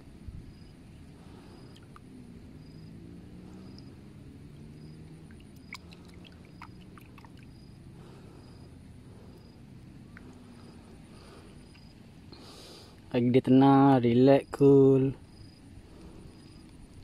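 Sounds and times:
faint low engine drone: 0:00.0 - 0:17.0
small water splashes and drips: 0:01.3 - 0:02.2, 0:03.3 - 0:08.1.

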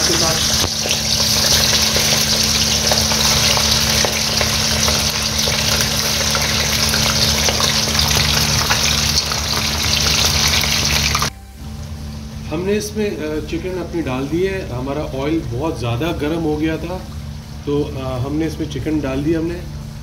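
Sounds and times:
chicken sizzling in hot oil: 0:00.0 - 0:11.3
low hum: 0:00.0 - 0:20.0.

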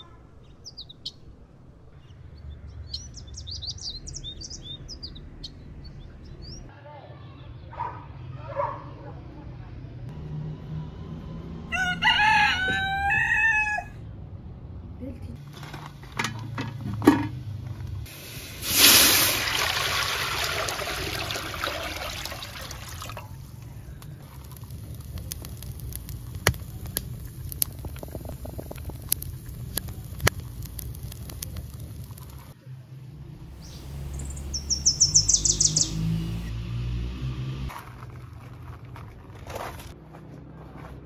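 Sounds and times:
bird singing: 0:00.0 - 0:06.7, 0:33.4 - 0:36.6
water pouring and splashing: 0:18.1 - 0:32.6
wood fire crackling and popping: 0:23.4 - 0:32.6.

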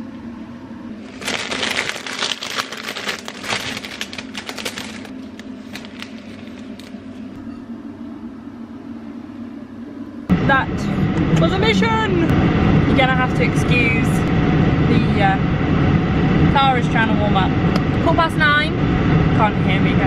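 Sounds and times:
steady low hum: 0:00.0 - 0:20.0
flower stems crinkling and snipping: 0:01.1 - 0:07.0.

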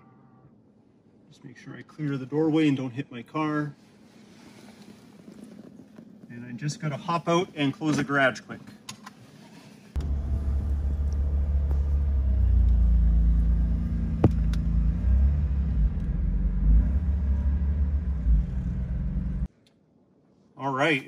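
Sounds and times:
pickup engine idling: 0:10.0 - 0:14.6.

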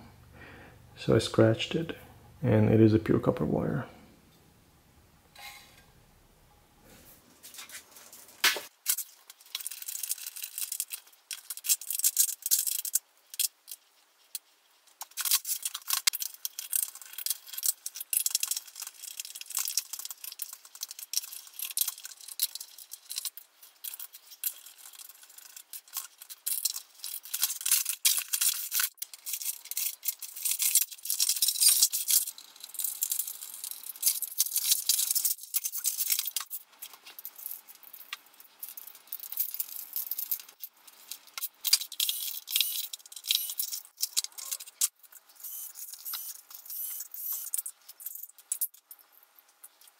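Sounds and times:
plastic parts and screws rattling: 0:08.0 - 0:49.9.

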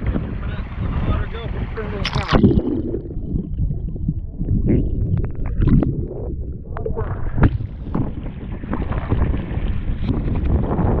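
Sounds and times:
stream water splashing and rushing: 0:00.0 - 0:04.4
muffled underwater rumble: 0:00.0 - 0:11.0
wind on microphone: 0:00.0 - 0:11.0.

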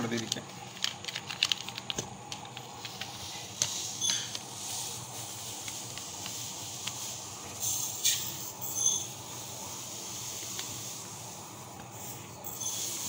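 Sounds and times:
packet and tumbler clicks: 0:00.0 - 0:04.5.

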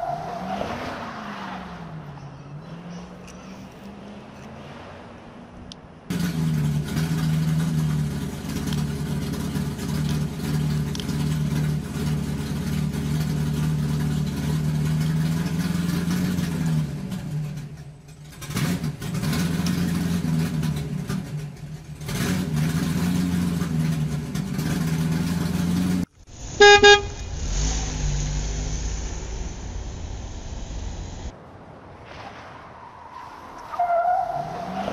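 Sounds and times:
low vehicle engine: 0:00.0 - 0:34.9
loud horn toot: 0:26.5 - 0:27.3.

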